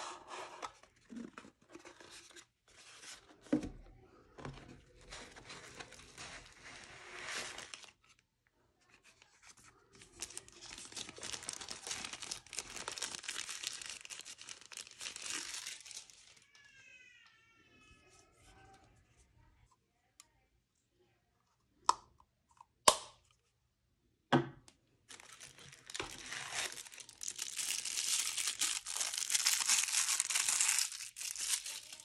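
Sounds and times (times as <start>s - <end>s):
plastic and tissue paper crinkling: 5.0s - 8.2s, 9.0s - 16.7s, 25.1s - 32.0s.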